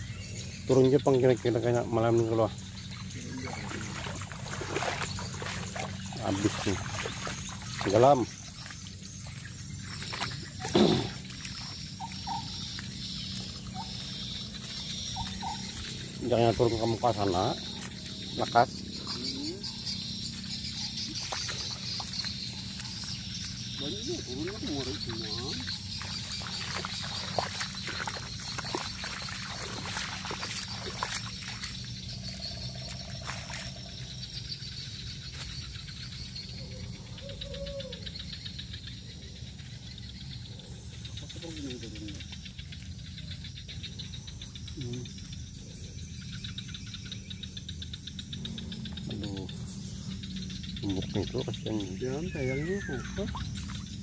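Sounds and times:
insects buzzing: 0.0s - 54.0s
steady low hum: 0.0s - 54.0s
water trickling over garden: 0.6s - 36.9s, 48.8s - 54.0s.

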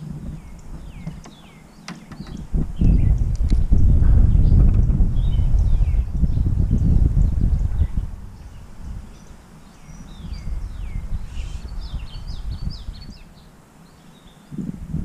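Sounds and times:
birds whistling: 0.3s - 14.5s
low rumble: 2.4s - 9.0s.

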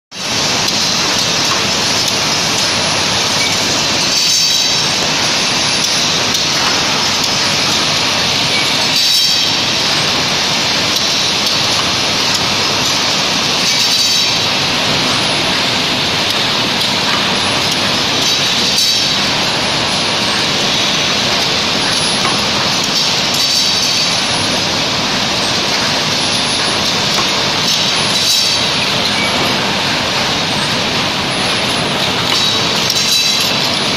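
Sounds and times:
sharp machine cycle noise: 0.2s - 33.9s.

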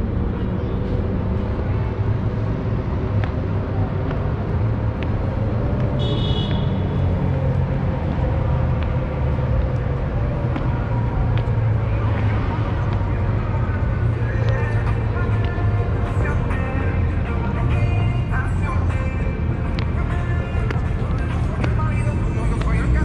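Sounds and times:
low rumble of passing cars: 0.0s - 23.0s.

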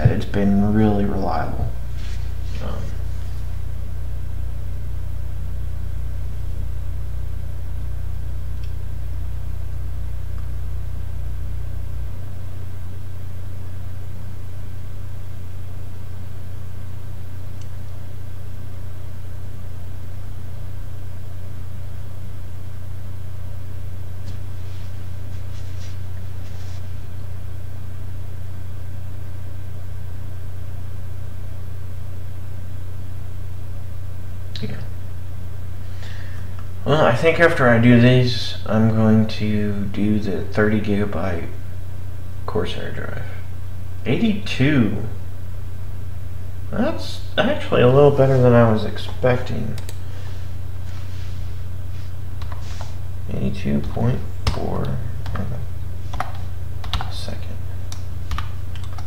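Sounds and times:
computer hum: 0.0s - 59.0s.

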